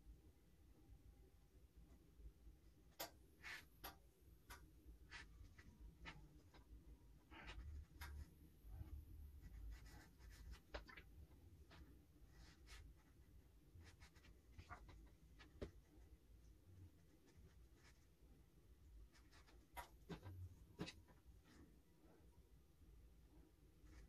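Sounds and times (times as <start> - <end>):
paintbrush scratching on paper: 9.4 - 16.2.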